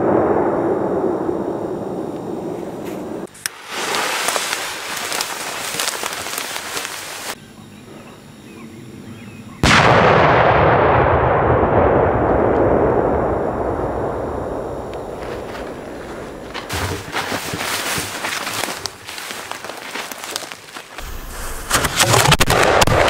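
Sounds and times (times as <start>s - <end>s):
rumbling echo: 0.0s - 3.3s, 9.7s - 16.5s
fuse hissing and crackling: 2.1s - 7.4s, 14.8s - 22.8s.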